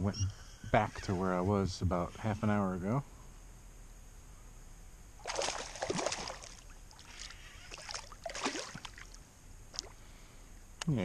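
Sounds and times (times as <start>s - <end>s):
fish splashing in water: 5.2s - 9.2s.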